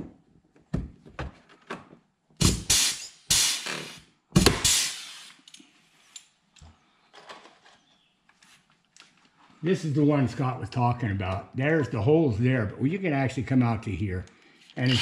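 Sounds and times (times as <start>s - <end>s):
pneumatic rivet gun hissing: 2.4s - 5.6s.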